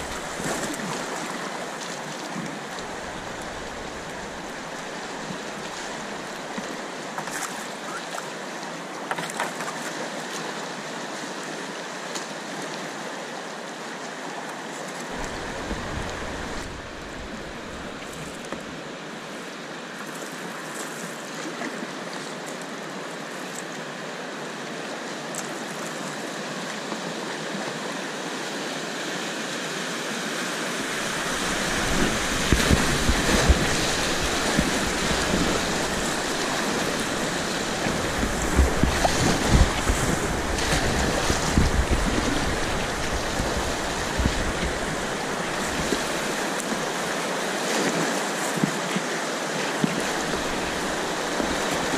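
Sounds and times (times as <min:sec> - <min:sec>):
deep rumble of white water: 0:00.0 - 0:07.2, 0:15.0 - 0:19.4, 0:21.2 - 0:51.9
paddle splashes: 0:00.0 - 0:10.6, 0:14.6 - 0:23.6, 0:30.6 - 0:51.9
river water rushing: 0:00.0 - 0:51.9.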